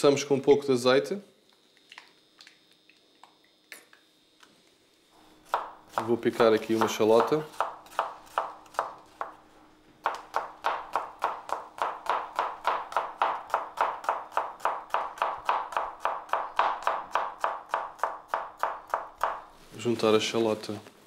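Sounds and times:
knife chopping on cutting board: 5.4 - 9.4, 10.0 - 19.5.

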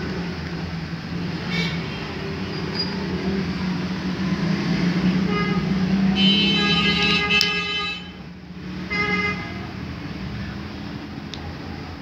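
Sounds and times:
vehicle engine droning: 0.0 - 12.0
car horn tooting: 5.3 - 8.2, 8.9 - 9.6.

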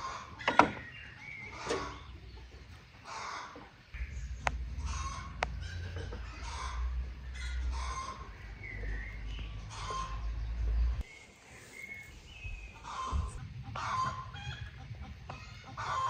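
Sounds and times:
chickens and birds calling: 0.0 - 16.0
steady low rumble: 3.9 - 11.1, 12.0 - 15.8.

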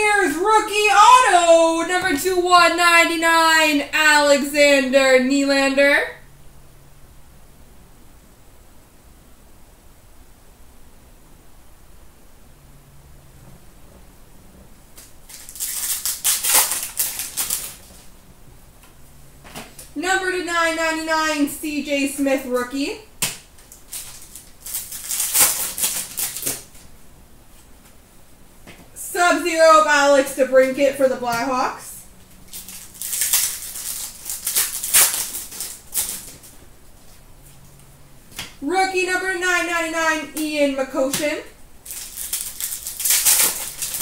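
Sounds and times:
wrapper tearing and crinkling: 15.0 - 18.0, 23.6 - 26.8, 32.5 - 36.5, 41.8 - 44.0.

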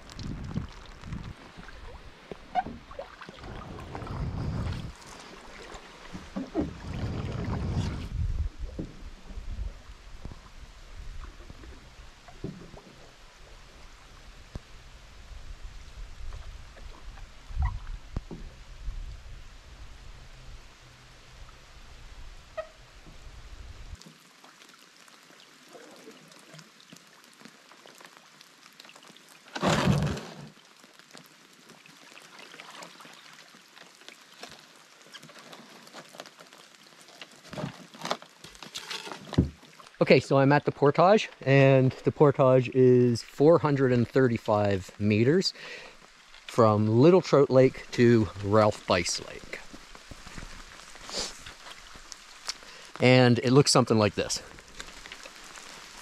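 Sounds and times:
paddle strokes through water: 0.0 - 14.8, 29.3 - 40.0, 47.9 - 52.9
water drips and splashes: 0.0 - 19.2, 23.9 - 56.0
wind rumbling on microphone: 0.0 - 24.0
rain pattering on lake: 0.0 - 56.0
canoe hull scraping thump: 2.3 - 9.1, 29.5 - 30.6, 37.4 - 39.6.

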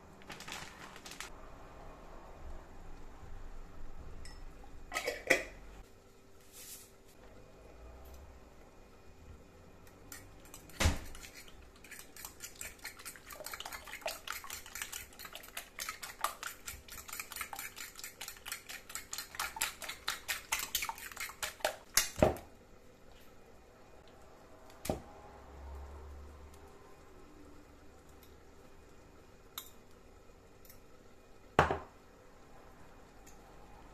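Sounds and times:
fork beating batter in bowl: 10.1 - 22.2
grated vegetable rustling: 11.1 - 21.8.

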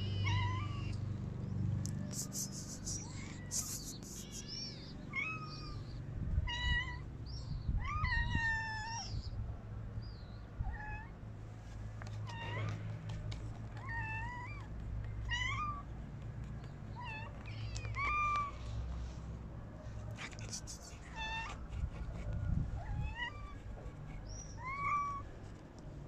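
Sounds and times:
cats and kittens meowing: 0.0 - 1.0, 2.0 - 7.1, 7.7 - 9.2, 10.6 - 11.2, 12.1 - 15.9, 16.9 - 18.9, 20.2 - 25.3.

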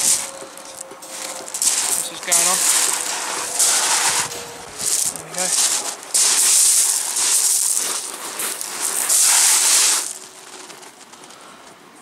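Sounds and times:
camera rubbing against clothing: 0.0 - 11.2.

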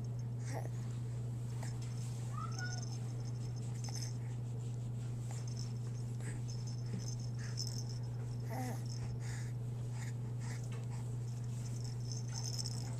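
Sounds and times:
steady low hum: 0.0 - 12.9
toy rattling: 2.4 - 4.1, 5.4 - 9.0, 11.4 - 12.9.

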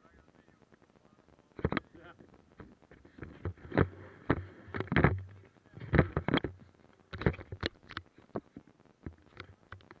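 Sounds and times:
camera knocks and rubbing: 2.6 - 7.8.

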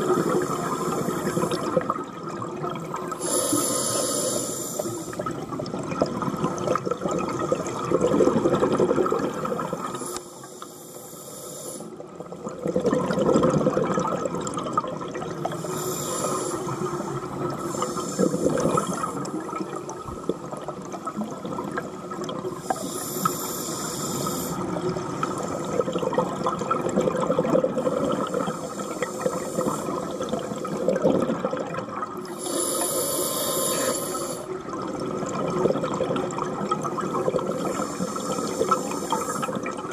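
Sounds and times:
hissing regulator inhales: 0.0 - 1.8, 3.2 - 5.2, 9.9 - 11.9, 15.6 - 19.3, 22.6 - 25.8, 27.8 - 30.8, 32.3 - 34.5, 37.6 - 39.6
bubbling exhaled air: 0.0 - 10.2, 11.7 - 39.9.

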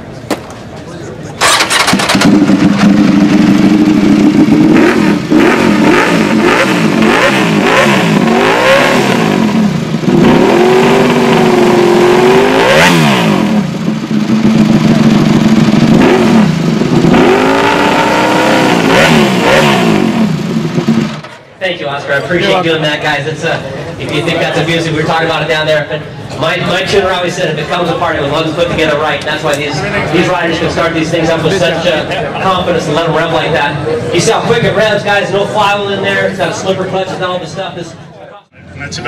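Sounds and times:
motorcycle engine idling and revving: 1.4 - 21.5.

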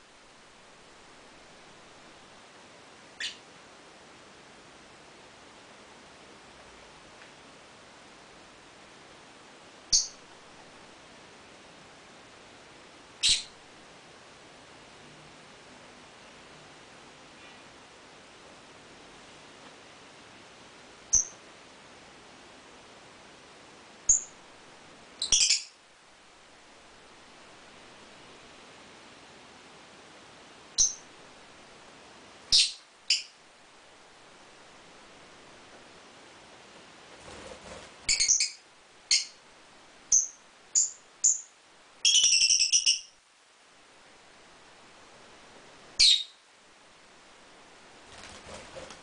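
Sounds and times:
lovebirds chirping: 3.2 - 3.5, 9.9 - 10.2, 13.2 - 13.6, 21.1 - 21.4, 24.1 - 24.4, 25.2 - 25.8, 30.8 - 31.1, 32.5 - 33.4, 38.1 - 39.4, 40.1 - 43.2, 46.0 - 46.4.

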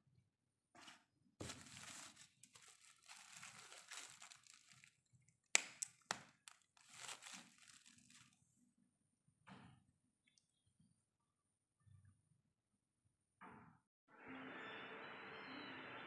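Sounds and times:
bubble wrap rustling: 1.4 - 8.4.

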